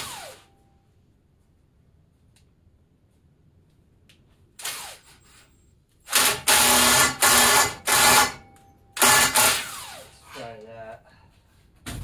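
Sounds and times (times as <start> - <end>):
electric drill whirring: 0.0 - 0.5, 4.6 - 5.2, 6.1 - 8.4, 9.0 - 10.2.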